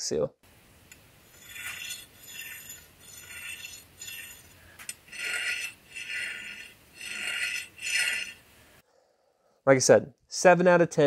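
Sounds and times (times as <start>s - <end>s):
metal seal scraping strokes: 1.2s - 8.8s.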